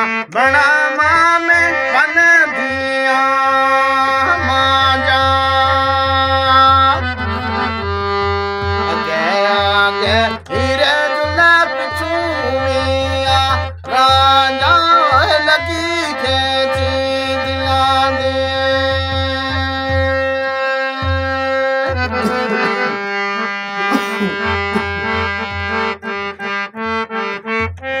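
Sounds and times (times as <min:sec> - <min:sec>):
man singing: 0:00.0 - 0:07.8, 0:08.8 - 0:23.0
harmonium chords: 0:00.0 - 0:28.0.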